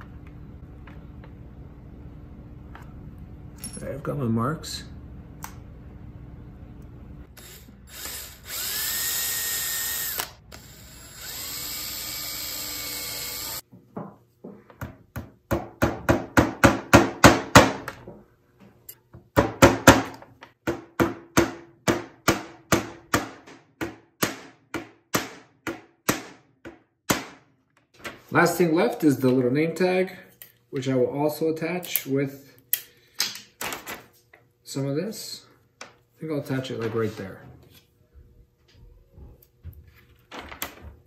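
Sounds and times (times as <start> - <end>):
small drill boring into wood: 7.4 - 13.6.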